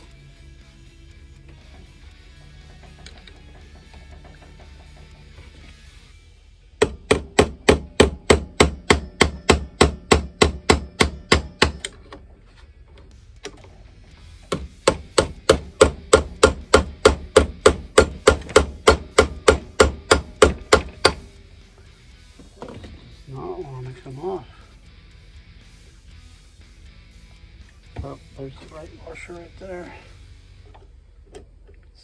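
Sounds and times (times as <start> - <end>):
rapid hammer blows on metal: 6.8 - 11.9, 14.5 - 21.3.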